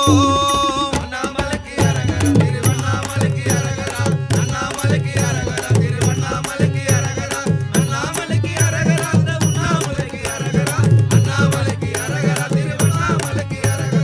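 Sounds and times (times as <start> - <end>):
hand percussion and rattles: 0.0 - 14.0
steady drum beat: 0.0 - 14.0.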